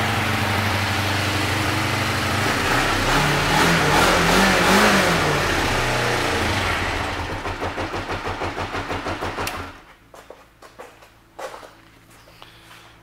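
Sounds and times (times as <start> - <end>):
motorcycle engine revving and idling: 0.0 - 9.9.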